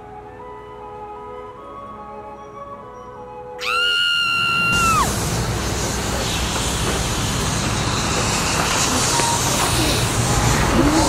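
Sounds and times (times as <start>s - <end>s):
loud rushing wind: 4.0s - 11.0s.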